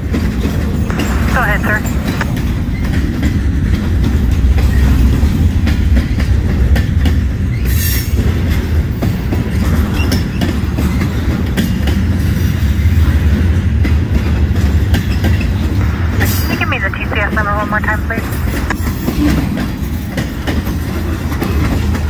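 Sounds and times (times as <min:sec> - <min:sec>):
freight train rolling by: 0:00.0 - 0:16.6, 0:18.1 - 0:22.0.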